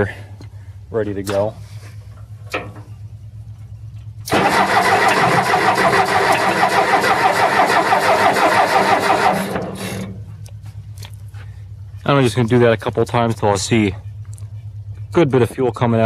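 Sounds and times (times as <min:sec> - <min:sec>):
starter cranking diesel engine: 0:04.2 - 0:16.0.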